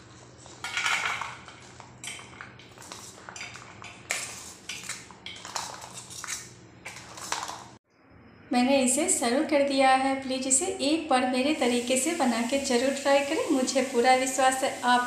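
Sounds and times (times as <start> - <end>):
spoon scraping steel plates: 2.1 - 7.5.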